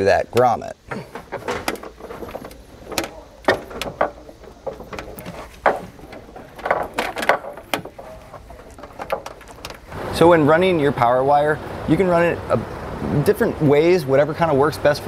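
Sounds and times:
light knocks: 0.4s - 9.9s
wire scraping and rustling: 0.8s - 10.0s.

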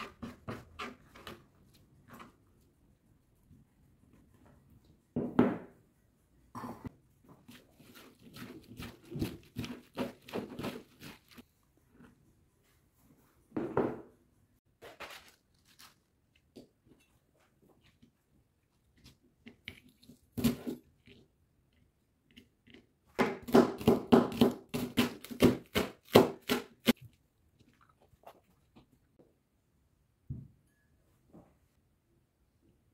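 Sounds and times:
knife chopping on plastic board: 23.2s - 27.0s.

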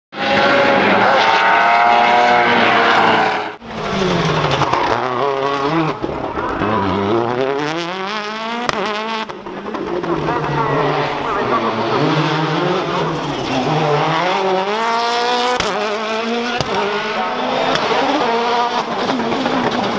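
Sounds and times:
rally car engine revving: 0.1s - 19.9s
exhaust cracks: 3.6s - 11.6s.

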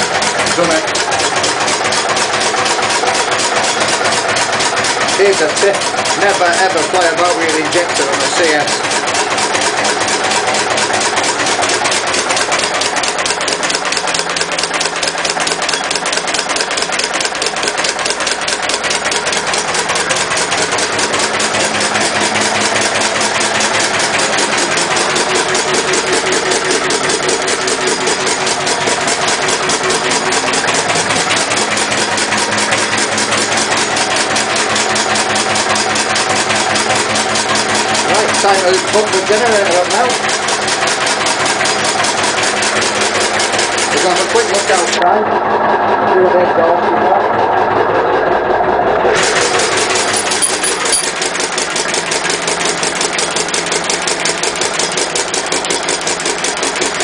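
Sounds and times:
diesel engine running with clatter: 0.0s - 57.0s.

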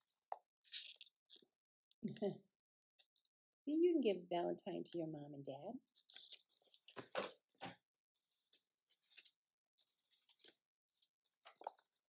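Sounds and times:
pages turning: 5.9s - 12.0s.

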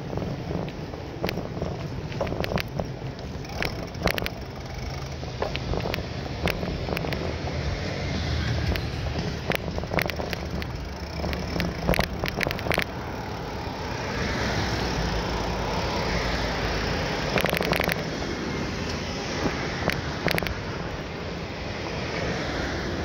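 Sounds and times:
bicycle road noise: 0.0s - 23.0s
wind rushing over microphone: 0.0s - 23.0s
rattling clicks: 0.6s - 7.4s, 8.6s - 14.2s, 17.1s - 18.2s, 18.8s - 20.6s.

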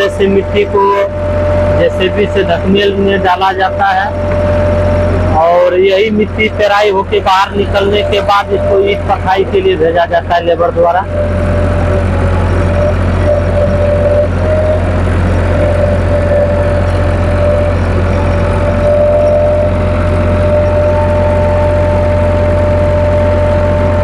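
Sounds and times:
diesel engine droning: 0.0s - 24.0s
steady whine: 0.0s - 24.0s.

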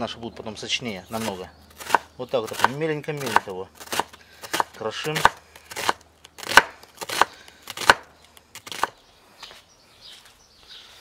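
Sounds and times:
knife chopping on wooden board: 1.2s - 8.9s.

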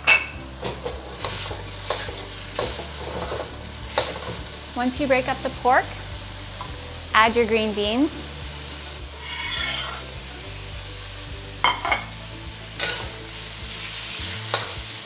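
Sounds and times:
food sizzling in hot oil: 0.0s - 15.0s
metal spatula scraping wok: 0.6s - 4.5s, 9.0s - 10.2s, 12.8s - 13.2s, 14.0s - 14.8s.

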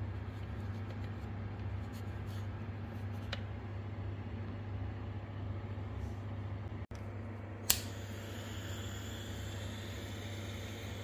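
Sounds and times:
low steady hum: 0.0s - 11.0s
heat tool switch click: 7.6s - 8.0s
heat tool hissing: 7.7s - 11.0s.

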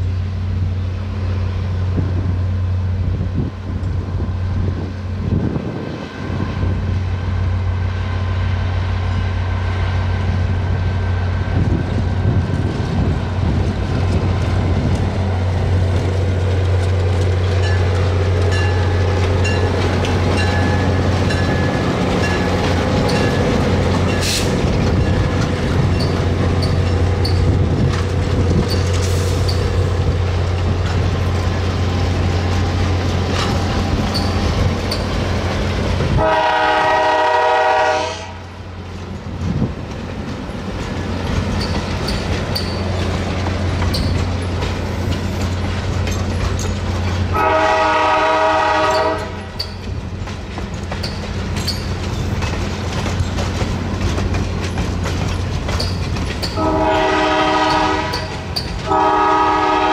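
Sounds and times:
train running past: 0.0s - 59.9s
wheels clicking over rails: 13.6s - 36.2s, 38.9s - 47.4s, 48.8s - 56.9s, 57.6s - 59.0s
train horn blasts: 36.2s - 38.4s, 47.3s - 49.6s, 56.6s - 59.9s.

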